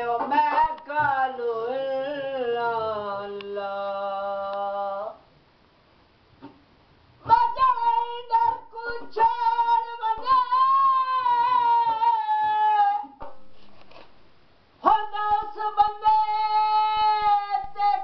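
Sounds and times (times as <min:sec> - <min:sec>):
high-pitched voice singing: 0:07.2 - 0:13.2, 0:14.8 - 0:18.0.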